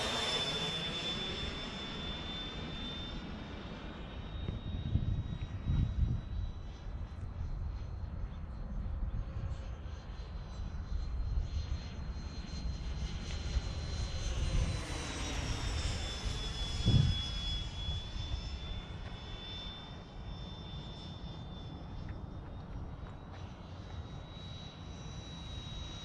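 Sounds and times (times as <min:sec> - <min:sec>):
steady low rumble: 0:02.0 - 0:20.8
electric ducted fan whine: 0:14.4 - 0:19.7.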